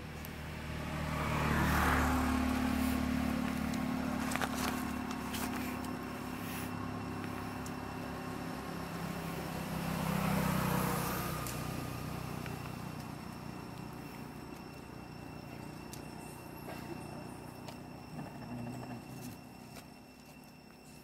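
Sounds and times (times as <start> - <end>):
vehicle engine passing: 0.0 - 21.0.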